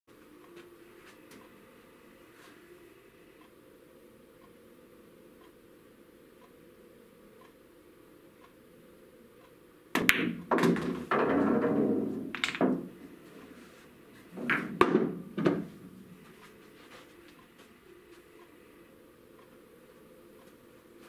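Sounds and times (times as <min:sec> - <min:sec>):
knocks and clunks: 0:10.0 - 0:13.0, 0:14.4 - 0:15.8
pool cue striking ball: 0:10.0 - 0:13.0, 0:14.4 - 0:15.7
pool balls clacking: 0:10.0 - 0:13.2, 0:14.2 - 0:16.0
ball rolling through return channel: 0:10.0 - 0:16.2.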